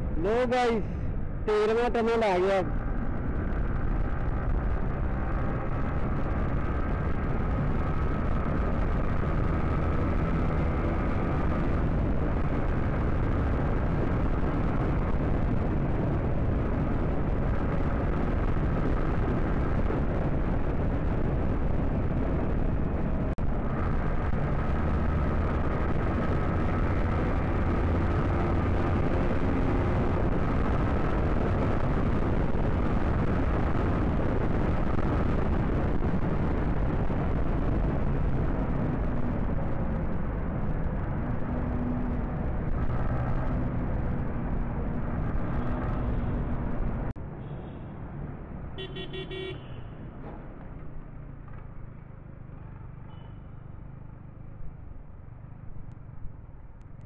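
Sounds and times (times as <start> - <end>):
wind rush on microphone: 2.5 - 47.2.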